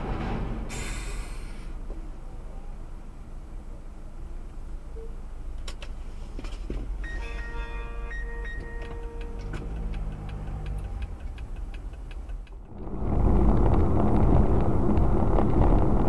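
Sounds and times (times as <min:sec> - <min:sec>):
engine and road hum: 0:00.0 - 0:16.0
rumble of tyres and engine: 0:00.0 - 0:16.0
rapid ticking: 0:08.8 - 0:16.0.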